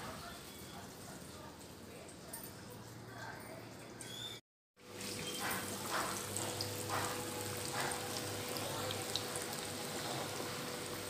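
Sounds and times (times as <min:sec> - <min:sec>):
food deep-frying in oil: 0:04.8 - 0:11.0.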